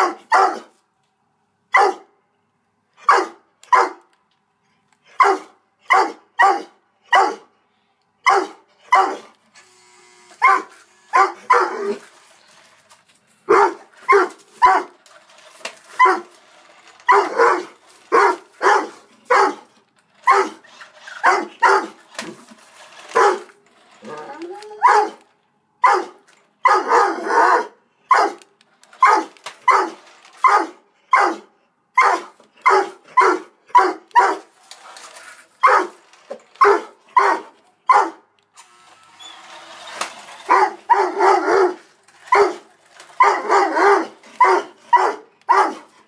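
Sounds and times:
dog barking: 0:00.0 - 0:00.7, 0:01.7 - 0:02.1, 0:03.0 - 0:04.0, 0:05.2 - 0:07.5, 0:08.2 - 0:09.2, 0:10.4 - 0:12.0, 0:13.5 - 0:15.0, 0:17.1 - 0:19.7, 0:21.2 - 0:22.0, 0:24.8 - 0:25.2, 0:25.8 - 0:28.4, 0:29.0 - 0:34.5, 0:35.6 - 0:35.9, 0:36.6 - 0:38.2, 0:40.5 - 0:42.6, 0:43.2 - 0:45.9.

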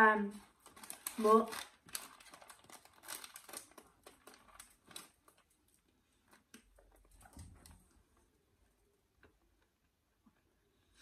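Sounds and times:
crunching and chewing: 0:00.6 - 0:07.2.

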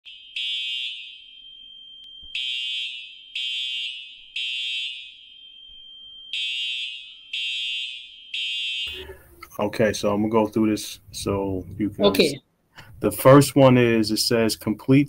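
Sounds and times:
fire alarm horn blasts: 0:00.1 - 0:09.3
faint steady alarm tone: 0:00.1 - 0:09.5.

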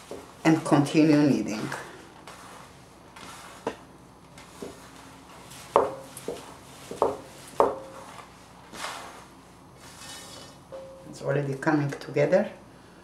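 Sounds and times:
hands kneading wet grain: 0:00.0 - 0:10.1.

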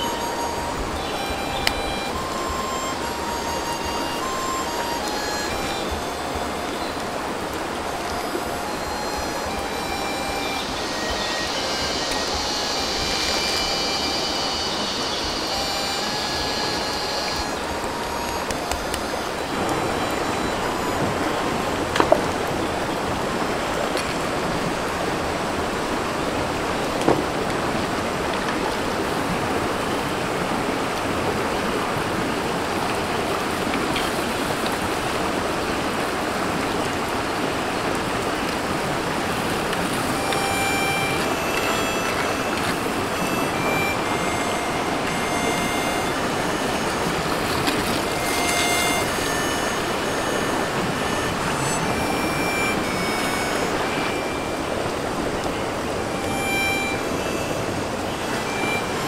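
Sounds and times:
short high tones: 0:00.0 - 0:22.8, 0:40.0 - 0:59.0
river rushing over stones: 0:00.0 - 0:59.0.

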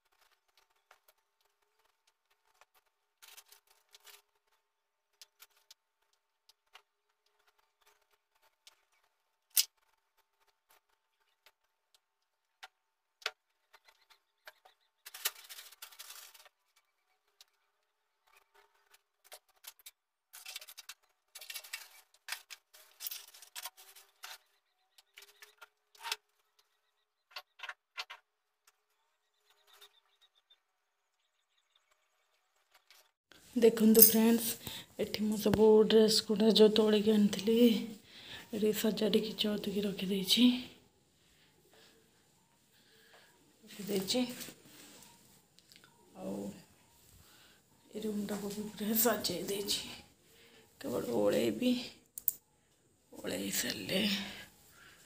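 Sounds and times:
rustling of clothes being handled: 0:32.9 - 0:52.0, 0:52.9 - 0:55.0.

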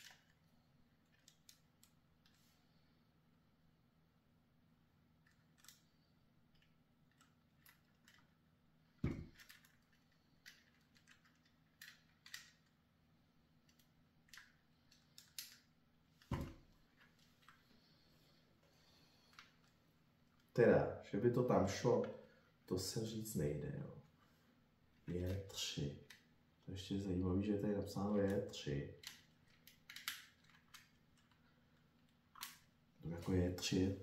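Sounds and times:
plastic parts clicking: 0:00.0 - 0:00.4, 0:01.0 - 0:02.4, 0:05.2 - 0:05.9, 0:06.5 - 0:08.4, 0:09.0 - 0:12.8, 0:13.7 - 0:15.7, 0:29.0 - 0:32.7.

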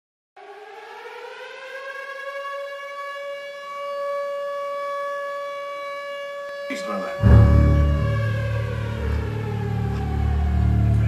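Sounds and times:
air-raid siren winding up: 0:06.7 - 0:11.0.

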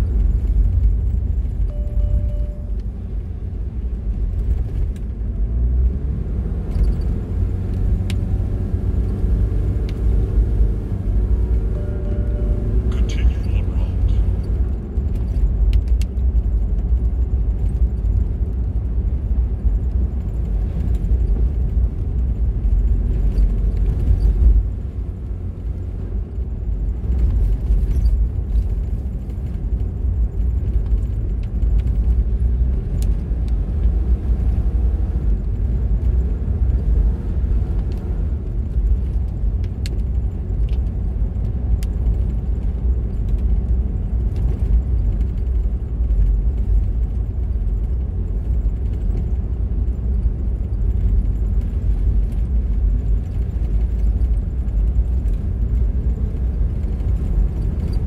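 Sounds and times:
car road and engine rumble: 0:00.0 - 0:58.0.

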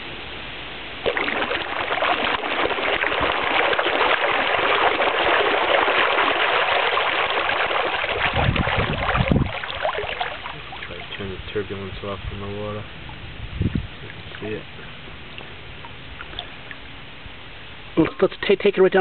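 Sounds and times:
water churning by propeller: 0:01.0 - 0:12.2.

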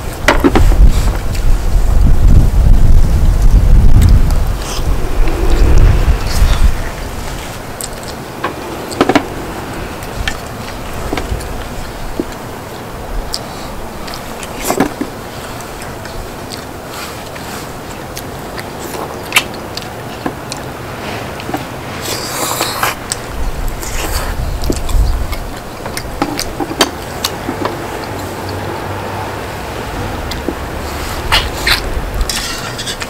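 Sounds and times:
steady hiss: 0:00.0 - 0:33.0
chewing and slurping: 0:13.3 - 0:33.0.

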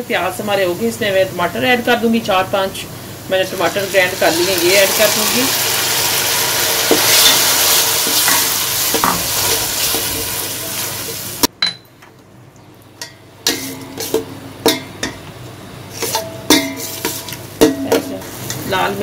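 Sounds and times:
tomatoes sizzling in hot oil: 0:00.0 - 0:11.5, 0:12.7 - 0:19.0
metal spatula scraping pot: 0:13.5 - 0:14.3, 0:15.9 - 0:18.7.

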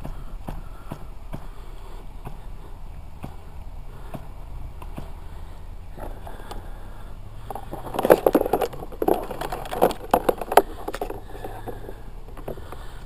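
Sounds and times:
handling clicks and knocks: 0:07.5 - 0:12.9.

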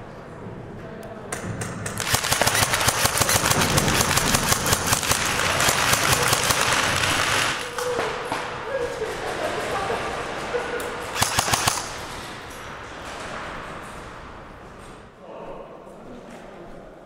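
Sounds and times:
airsoft guns firing bursts: 0:01.8 - 0:07.7, 0:11.1 - 0:12.1.

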